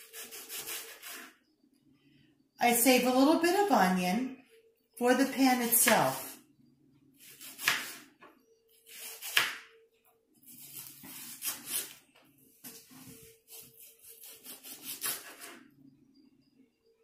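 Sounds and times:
knife slicing onion on board: 0:00.0 - 0:01.3, 0:07.2 - 0:08.2, 0:08.9 - 0:09.7, 0:10.5 - 0:12.0, 0:12.6 - 0:15.6.

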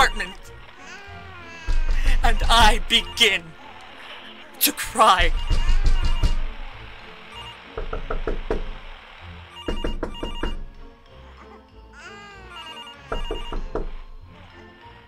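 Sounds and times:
eerie music: 0:00.0 - 0:15.0
heavy thumps: 0:01.7 - 0:03.4, 0:05.0 - 0:07.1, 0:07.8 - 0:09.1, 0:09.7 - 0:10.8.

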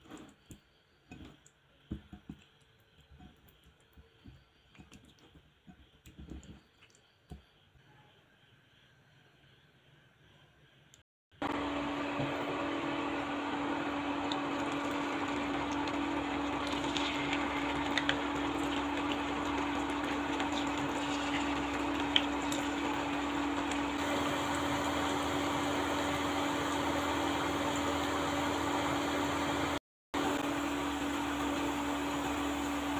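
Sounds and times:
potatoes sizzling in hot oil: 0:12.7 - 0:32.9
oil popping and crackling: 0:14.2 - 0:25.2.

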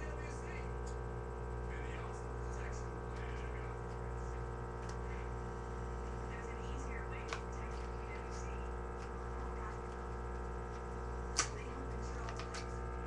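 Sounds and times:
electrical hum: 0:00.0 - 0:13.0
playing card click: 0:11.4 - 0:11.6.

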